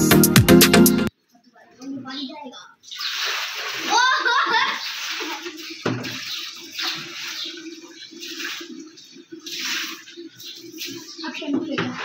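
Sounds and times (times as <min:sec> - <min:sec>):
water splashing in plastic tub: 0:02.7 - 0:12.0.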